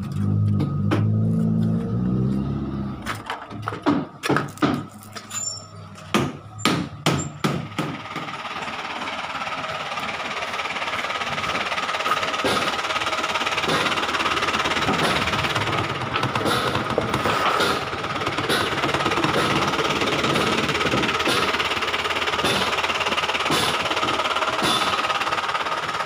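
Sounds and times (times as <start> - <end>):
lorry diesel engine running: 0.0 - 26.0
sharp knocks: 6.1 - 8.3.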